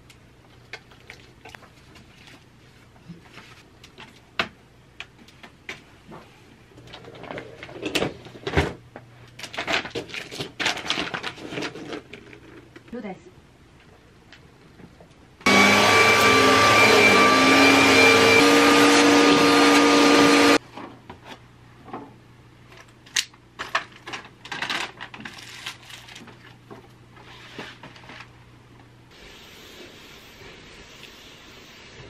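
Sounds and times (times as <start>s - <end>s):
vacuum cleaner running: 15.5s - 20.6s.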